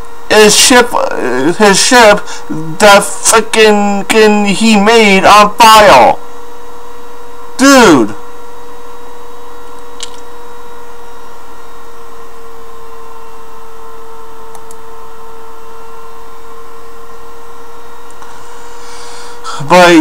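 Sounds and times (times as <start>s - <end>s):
constant mid-pitched tone: 0.0s - 13.9s
electrical hum and hiss: 0.0s - 20.0s.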